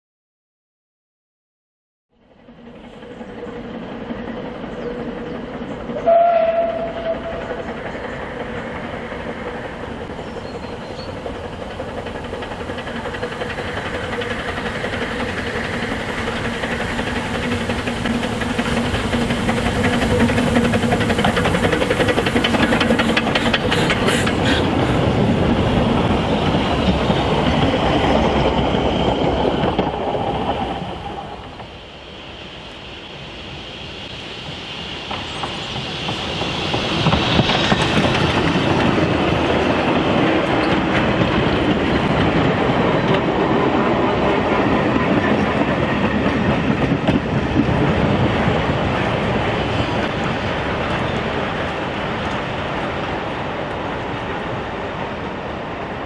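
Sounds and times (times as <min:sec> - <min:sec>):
steam train running: 0:02.2 - 0:56.0
train wheel clatter: 0:02.4 - 0:56.0
steam train whistle: 0:06.0 - 0:07.6.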